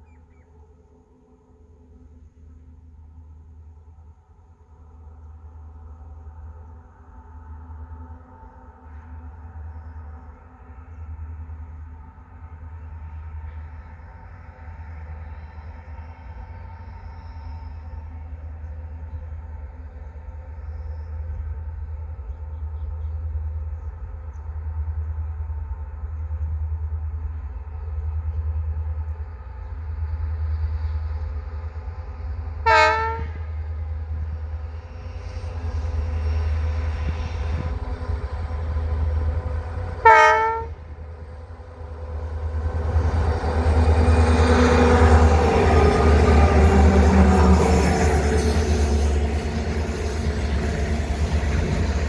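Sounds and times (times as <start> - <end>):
diesel locomotive engine drone: 0.0 - 52.0
train rumble: 0.0 - 52.0
train horn blasts: 32.6 - 33.6, 39.9 - 41.1.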